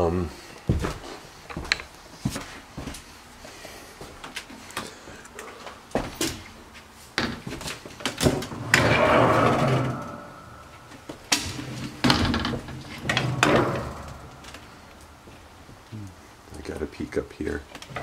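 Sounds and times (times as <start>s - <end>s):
wooden ladder knocks and rattles: 7.2s - 14.8s.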